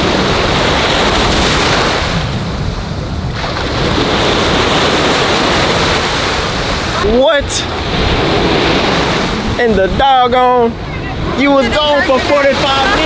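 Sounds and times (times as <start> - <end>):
small waves breaking: 0.0 - 13.0
wind on microphone: 0.0 - 13.0.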